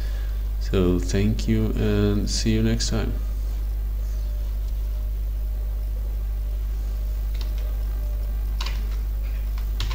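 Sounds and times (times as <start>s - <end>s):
low electrical hum: 0.0s - 9.9s.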